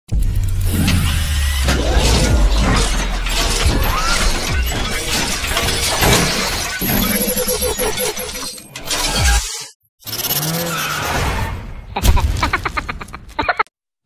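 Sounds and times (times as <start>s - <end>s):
crackling shattering hits: 12.0s - 13.1s.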